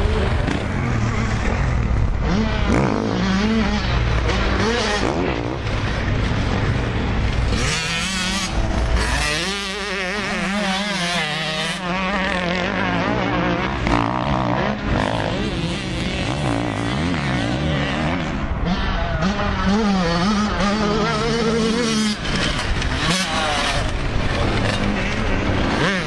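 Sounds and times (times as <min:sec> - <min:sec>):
dirt bike engines revving: 0:00.0 - 0:26.0.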